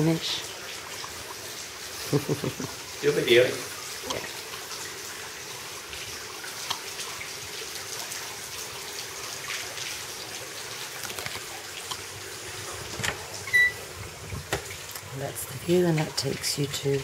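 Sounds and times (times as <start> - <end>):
trickle of running water: 0.0 - 17.0.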